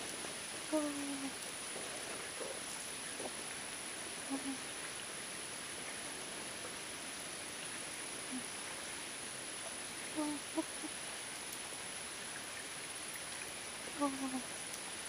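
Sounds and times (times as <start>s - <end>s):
stream hissing: 0.0s - 15.0s
low-pitched animal calls: 4.2s - 4.6s, 10.1s - 10.9s, 14.0s - 14.5s.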